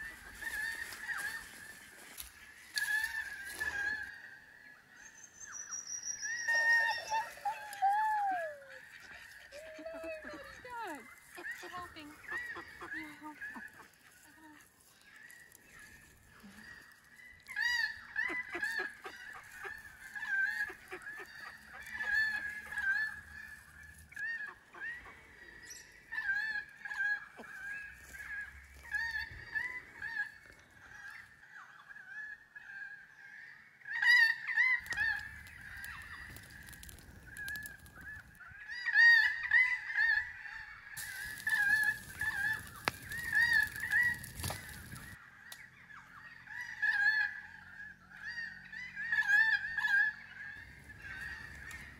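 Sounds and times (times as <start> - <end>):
waterfowl honking: 10.2 - 14.3, 15.0 - 30.4, 31.0 - 51.9.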